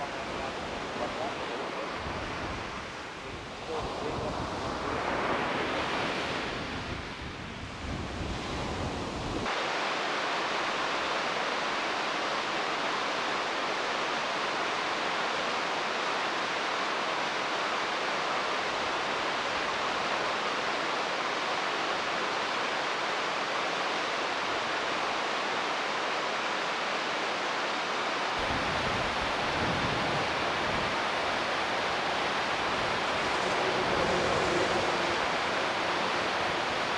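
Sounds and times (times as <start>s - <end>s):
river running over stones: 9.4s - 36.9s
waves breaking on rocky shore: 28.4s - 36.9s.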